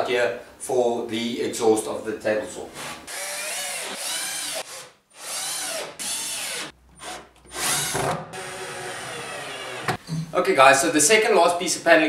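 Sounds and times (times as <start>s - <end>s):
cordless drill boring into wood: 2.8s - 10.0s.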